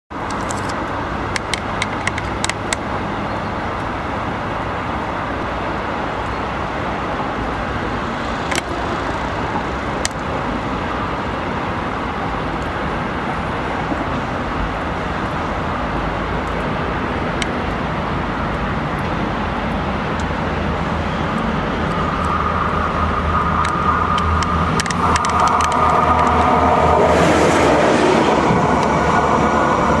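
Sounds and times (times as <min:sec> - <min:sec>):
train rumble: 0:00.1 - 0:30.0
sharp clicks: 0:00.2 - 0:02.8, 0:23.6 - 0:26.9
engine drone: 0:00.2 - 0:30.0.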